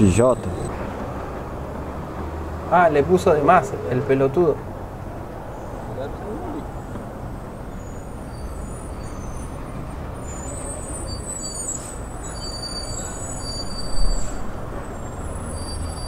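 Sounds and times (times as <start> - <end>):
traffic rumble: 0.0 - 16.0
faint high-pitched squeals: 7.6 - 16.0.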